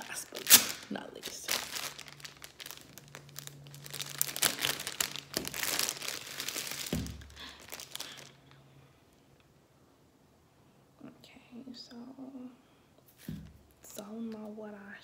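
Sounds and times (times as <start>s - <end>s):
plastic bag crinkling: 0.0s - 8.6s
dull thump: 6.9s - 7.2s, 13.2s - 13.6s.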